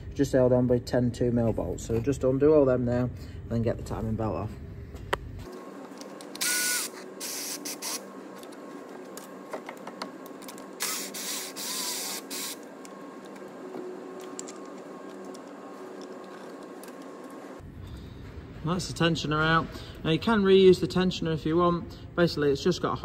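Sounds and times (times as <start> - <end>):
cordless power tool bursts: 6.4 - 8.0, 10.8 - 12.6.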